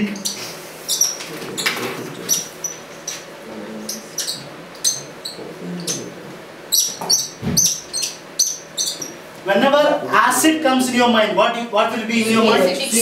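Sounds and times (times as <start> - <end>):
marker squeaking on whiteboard: 0.0 - 9.2.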